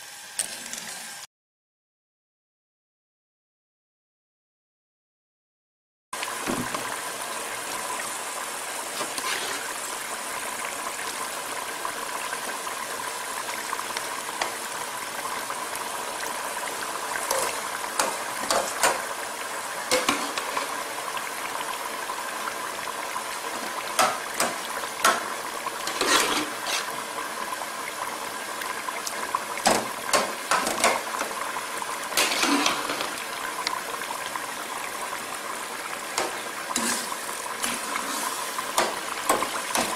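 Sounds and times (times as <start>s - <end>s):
liquid boiling in a pot: 6.2s - 39.9s
ladle knocking and scraping a pot: 9.0s - 9.8s, 17.2s - 19.0s, 19.9s - 20.8s, 23.6s - 27.0s, 29.7s - 31.2s, 32.2s - 33.2s.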